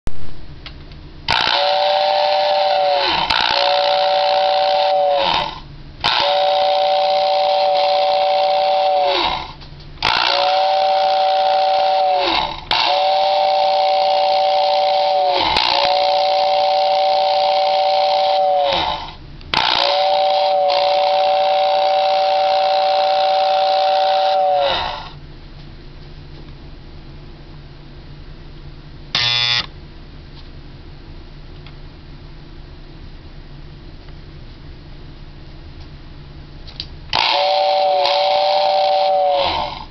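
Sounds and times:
two-tone toy train whistle: 1.3 - 25.2, 37.1 - 39.9.

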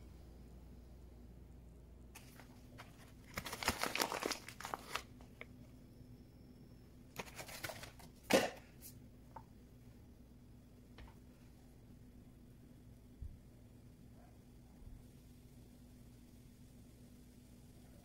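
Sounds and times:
crinkling and rustling: 2.2 - 5.5, 7.2 - 8.9.

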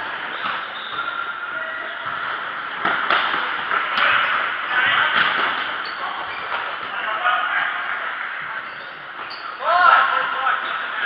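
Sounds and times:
ball kicks echoing in hall: 0.0 - 10.4
din of indoor play: 0.0 - 11.0.

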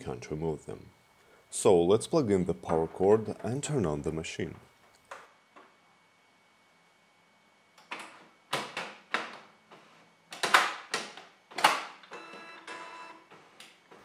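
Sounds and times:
printer mechanical clicks and clunks: 7.8 - 14.0
printer motor whirring: 12.1 - 14.0.

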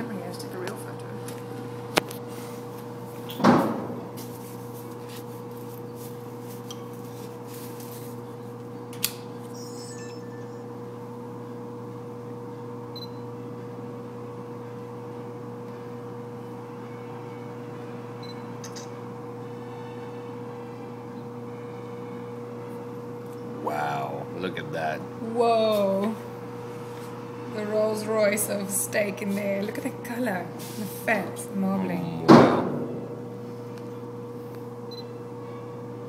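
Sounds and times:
low machine hum: 0.0 - 36.0
heavy thump: 32.3 - 33.0.

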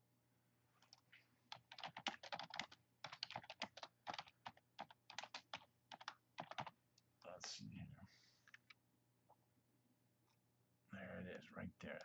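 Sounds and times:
computer keyboard typing: 0.8 - 6.8.

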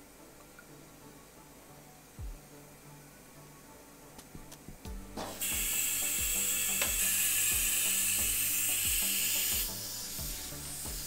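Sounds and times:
background music with steady beat: 0.0 - 11.0
compressed air hissing: 5.2 - 11.0.

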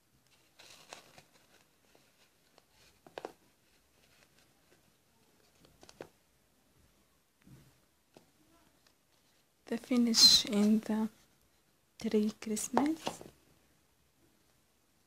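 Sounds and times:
hands rustling yarn: 0.0 - 6.2, 7.6 - 13.4.

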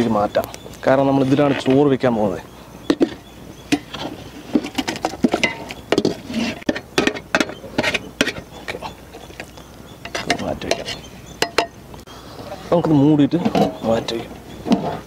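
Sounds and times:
metal spoon scraping metal pot: 2.9 - 9.4, 10.1 - 11.6.

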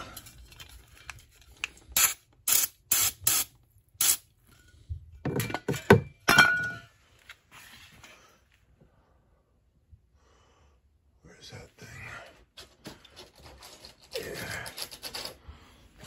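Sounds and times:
handling knocks and scrapes: 12.5 - 16.0.

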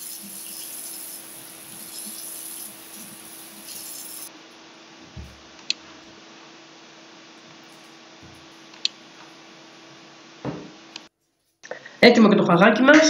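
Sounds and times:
dish brush scrubbing: 0.0 - 4.3
tap water running into sink: 0.0 - 4.3
dull thump: 5.0 - 5.5, 10.4 - 10.8.

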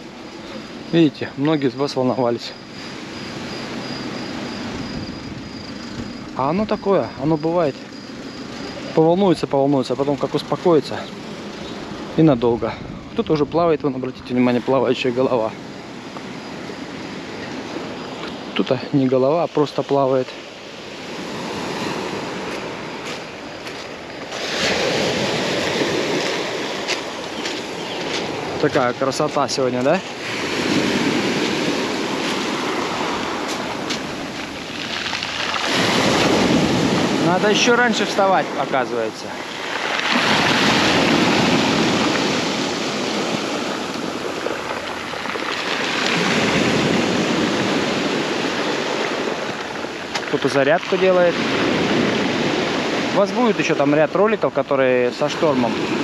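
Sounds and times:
waves washing up shingle: 0.0 - 56.0.

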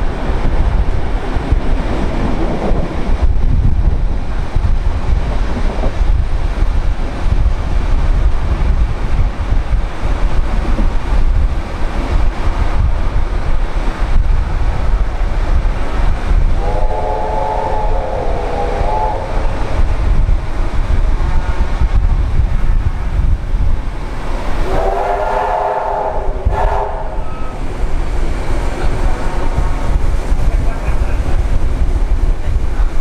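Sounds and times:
train carriage rumbling on track: 0.0 - 33.0
steam whistle: 16.6 - 19.6, 24.6 - 27.6.

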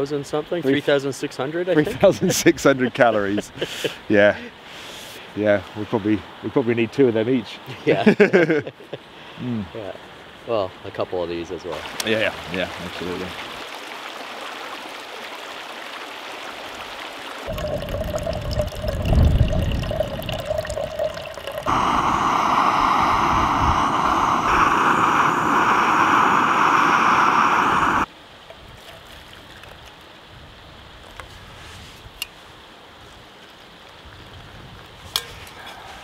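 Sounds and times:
stream running over stones: 9.8 - 30.3
low rumbling: 17.5 - 28.1
gas stove burning with hiss: 21.7 - 28.1.

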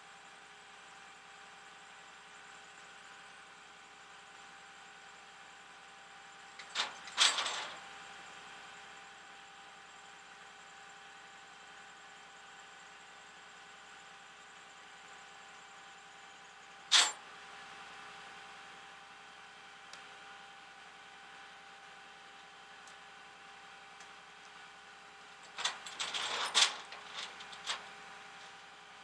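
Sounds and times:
short clatter: 6.6 - 7.8, 25.5 - 27.9.

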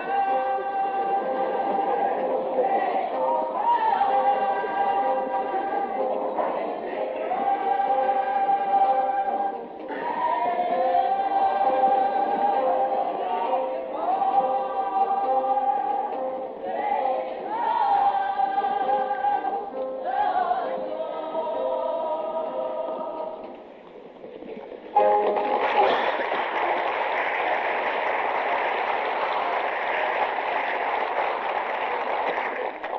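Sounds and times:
group singing show tune: 0.0 - 23.6
musical accompaniment: 0.0 - 32.2.

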